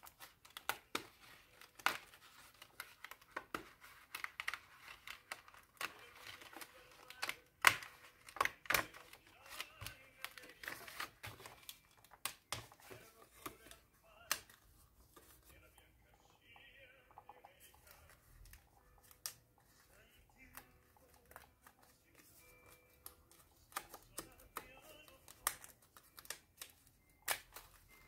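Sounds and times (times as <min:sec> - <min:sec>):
paper rustling and crinkling: 0:00.0 - 0:15.8, 0:17.7 - 0:28.0.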